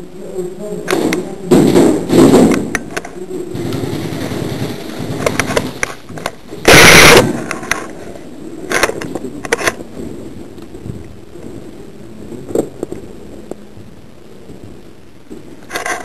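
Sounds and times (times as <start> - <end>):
loud burst of noise: 0.8 - 16.0
airsoft guns firing: 6.6 - 7.5.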